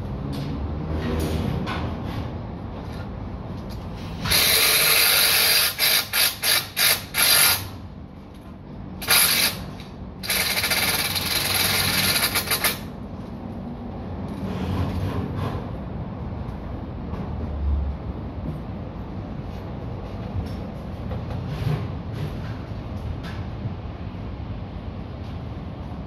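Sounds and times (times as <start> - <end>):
cordless power drill bursts: 4.2 - 7.7.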